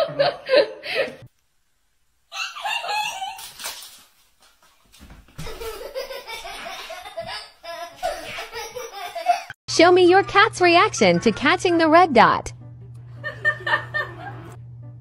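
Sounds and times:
people laughing: 0.0 - 1.3, 10.3 - 11.8, 13.1 - 14.6.

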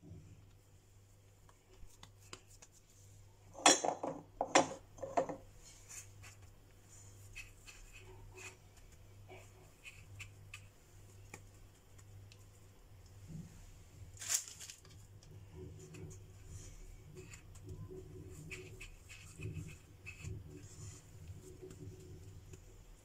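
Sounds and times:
hands rubbing food in breadcrumbs: 0.8 - 3.2, 5.6 - 23.0
plate knocking and clattering: 3.6 - 5.4.

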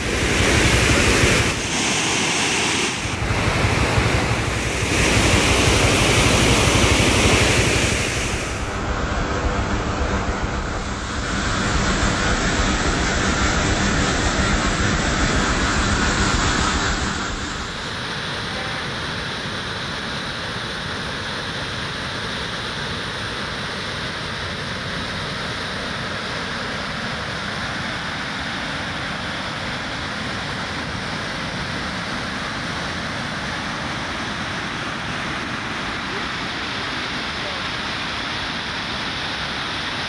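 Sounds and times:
floodwater rushing in river: 0.0 - 40.0.

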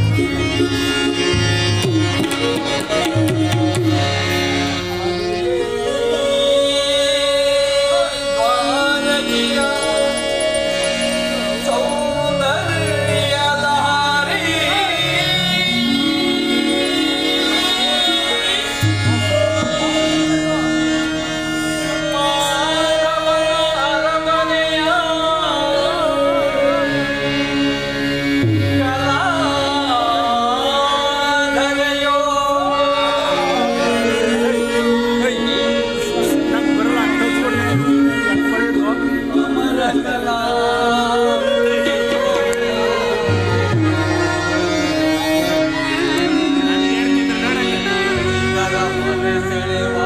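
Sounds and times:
harmonium chords and bass line: 0.0 - 50.0
person singing ornamented melody: 5.0 - 21.2, 28.8 - 50.0.

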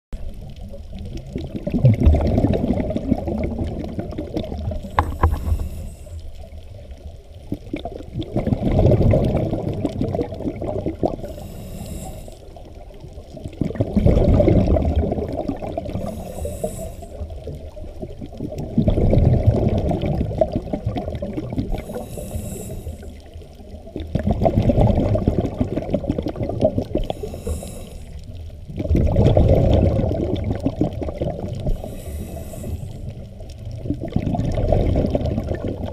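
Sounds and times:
underwater exhaled bubbles gurgling: 0.2 - 35.9
faint inhalation hiss: 3.8 - 6.6, 11.0 - 13.0, 15.8 - 17.8, 21.6 - 23.8, 26.8 - 28.6, 31.6 - 33.6.

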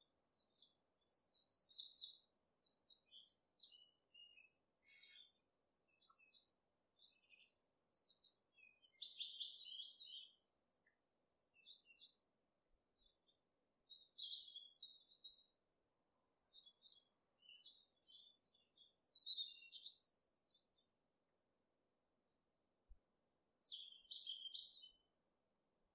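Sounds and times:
birds chirping: 0.6 - 6.4, 7.0 - 12.1, 13.8 - 15.5, 23.6 - 25.0.

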